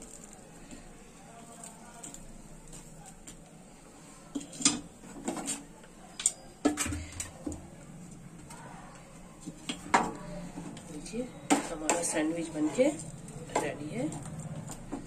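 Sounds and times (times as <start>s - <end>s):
frying pops and crackles: 0.0s - 3.7s.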